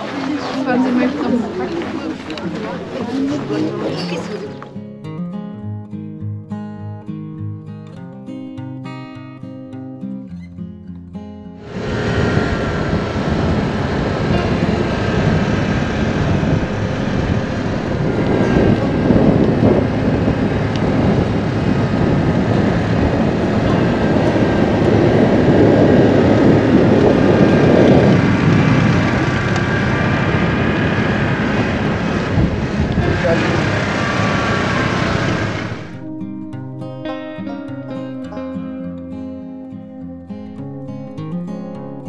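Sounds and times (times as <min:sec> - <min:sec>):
scooter engine running: 0:11.6 - 0:36.2
wind rush on microphone: 0:11.6 - 0:36.2.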